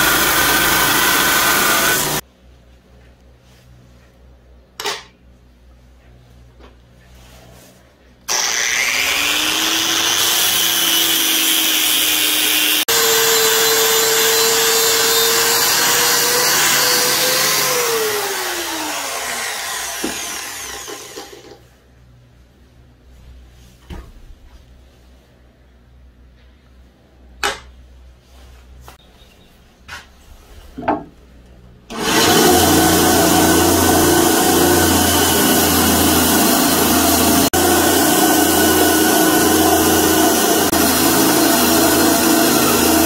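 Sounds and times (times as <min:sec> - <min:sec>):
angle grinder grinding steel: 0:00.0 - 0:02.2, 0:08.3 - 0:21.6, 0:31.9 - 0:43.0.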